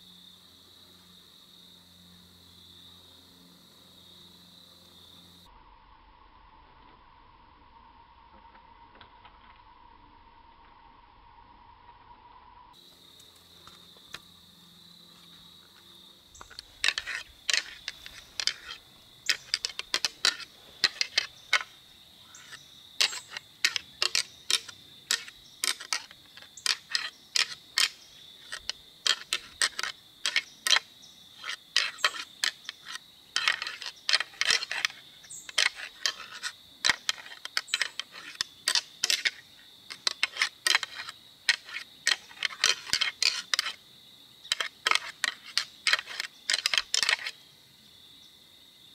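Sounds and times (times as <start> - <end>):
antlers clashing and clicking: 16.4 - 43.8, 44.5 - 47.4.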